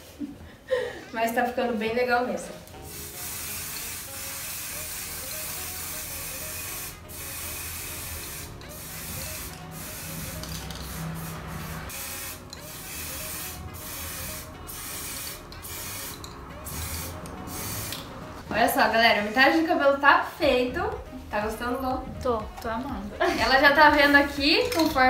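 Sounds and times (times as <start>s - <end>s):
aerosol spray hissing: 2.8s - 18.2s.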